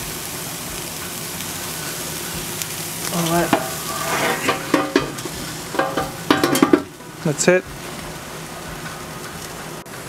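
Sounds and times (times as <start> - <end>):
patties sizzling on a grill: 0.0 - 10.0.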